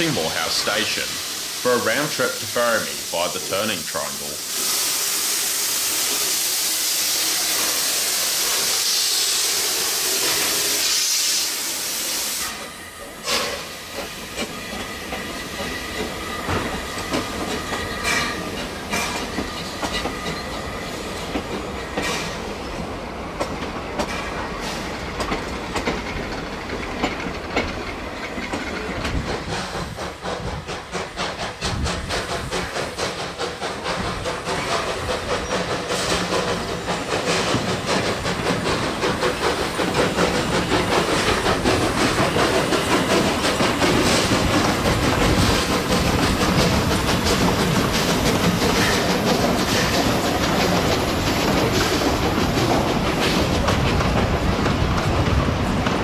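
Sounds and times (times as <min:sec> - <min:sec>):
steam hissing from locomotive: 0:00.0 - 0:23.3, 0:24.0 - 0:56.0
low train rumble: 0:00.0 - 0:56.0
train wheels clicking over rail joints: 0:12.4 - 0:56.0.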